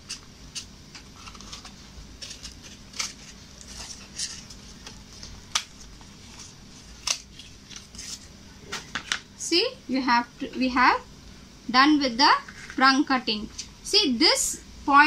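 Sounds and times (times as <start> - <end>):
scissors cutting cardboard: 0.0 - 4.9.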